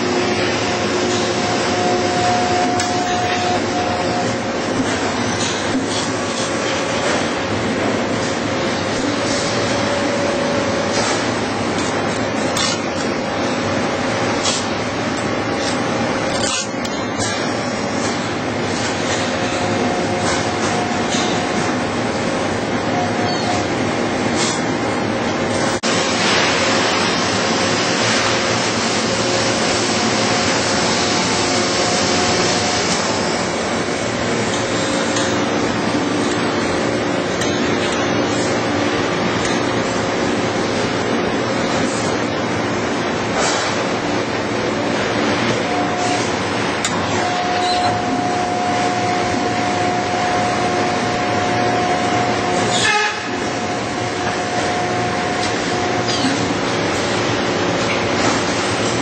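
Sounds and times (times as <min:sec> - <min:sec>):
thin steady whine: 0:00.0 - 0:26.4, 0:28.3 - 0:59.0
steel strip feeding over rollers: 0:00.0 - 0:59.0.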